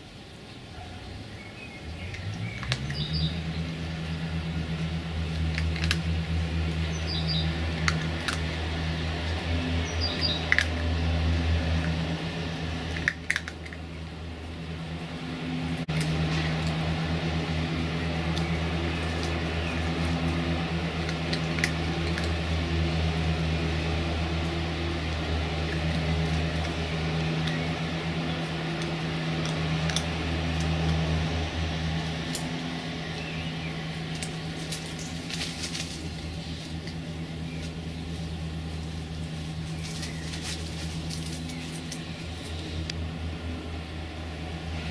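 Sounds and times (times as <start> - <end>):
low mechanical hum: 0.0 - 44.9
faint clicks and rustles: 34.0 - 43.0.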